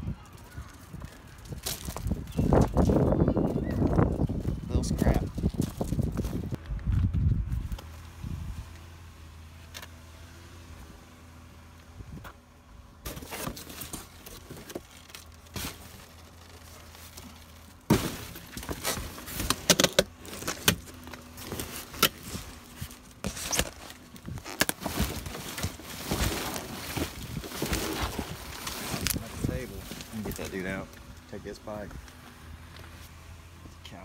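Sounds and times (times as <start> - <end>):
plastic bags rustling: 13.1 - 31.3.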